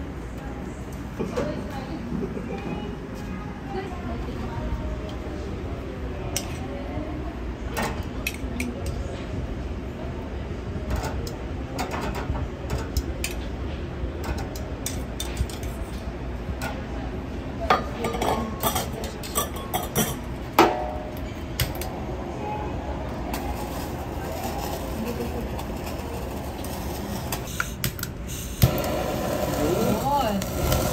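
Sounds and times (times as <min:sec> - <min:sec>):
kitchen background rumble: 0:00.0 - 0:30.9.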